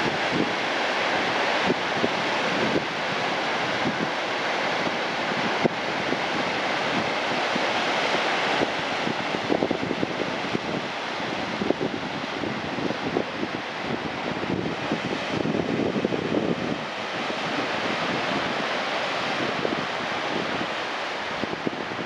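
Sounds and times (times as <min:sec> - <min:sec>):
wind buffeting microphone: 0:00.0 - 0:04.2, 0:04.8 - 0:22.0.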